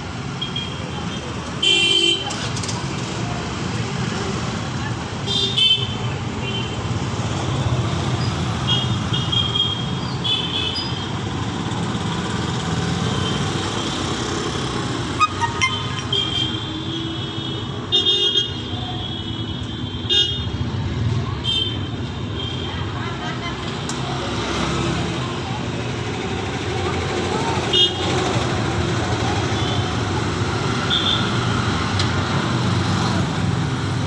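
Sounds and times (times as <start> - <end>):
street traffic of motorcycles: 0.0 - 34.0
short high-pitched horn beeps: 15.2 - 16.5.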